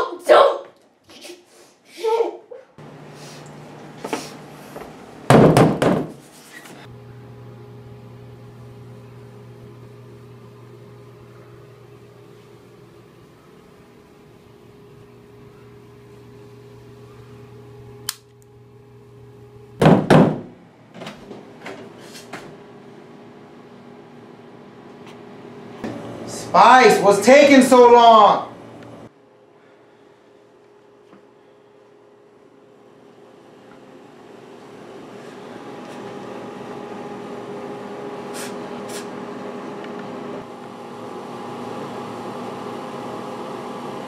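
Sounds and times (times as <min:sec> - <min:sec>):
electrical hum: 0:02.0 - 0:44.0
door bangs: 0:05.3 - 0:06.2.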